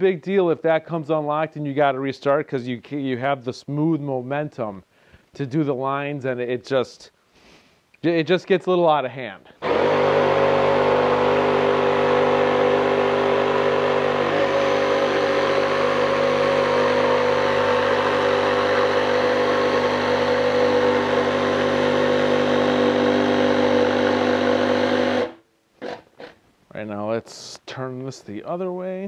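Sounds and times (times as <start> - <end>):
jigsaw cutting wood: 9.6 - 26.4.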